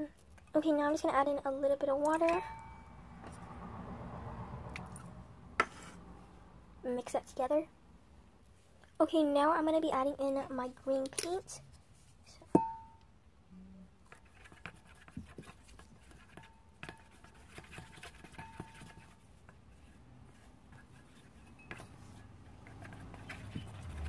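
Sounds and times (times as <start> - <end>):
sharp ringing tap: 12.6 - 13.1.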